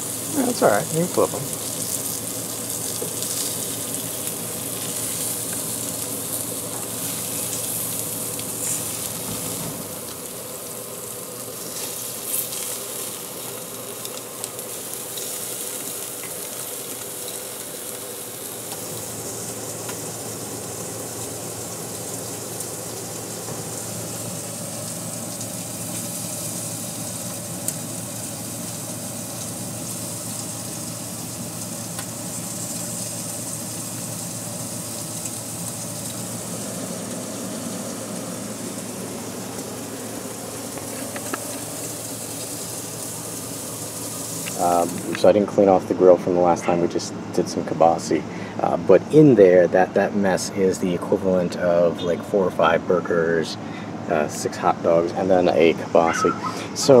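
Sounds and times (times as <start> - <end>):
meat sizzling on a grill: 0.0 - 57.0.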